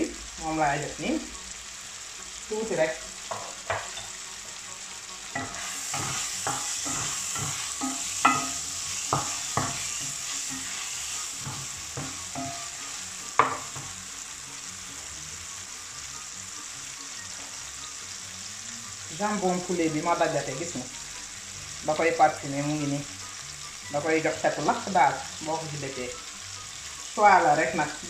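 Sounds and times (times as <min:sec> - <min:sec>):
chicken sizzling in frying pan: 0:00.0 - 0:28.0
wooden spoon scraping a pan: 0:05.4 - 0:13.9.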